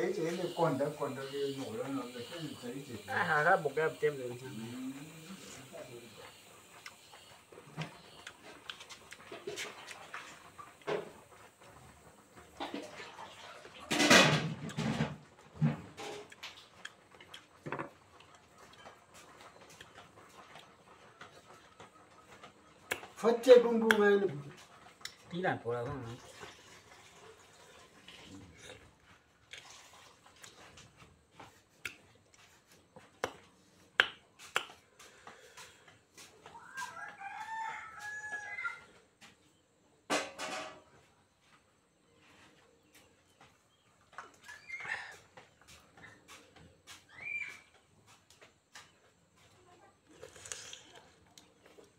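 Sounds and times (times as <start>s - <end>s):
rooster crowing: 36.4s - 39.0s
fruit flesh being torn apart: 50.2s - 51.5s.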